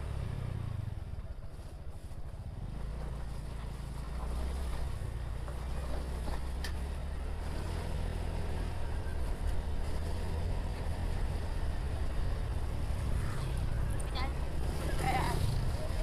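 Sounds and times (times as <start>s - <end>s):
wind and road noise: 0.0s - 16.0s.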